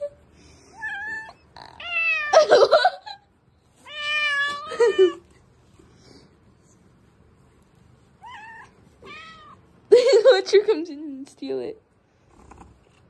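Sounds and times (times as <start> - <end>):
cat meowing: 0.8 - 2.4, 3.8 - 5.2, 8.2 - 9.6.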